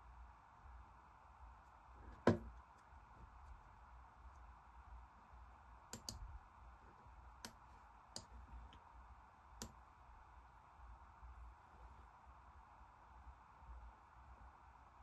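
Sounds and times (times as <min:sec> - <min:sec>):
low room hum: 0:00.0 - 0:15.0
computer mouse clicking: 0:05.9 - 0:06.3, 0:07.4 - 0:08.8.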